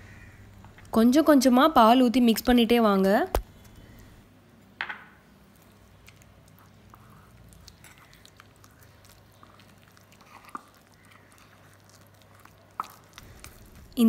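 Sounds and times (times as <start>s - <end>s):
batter squelching: 5.5s - 14.0s.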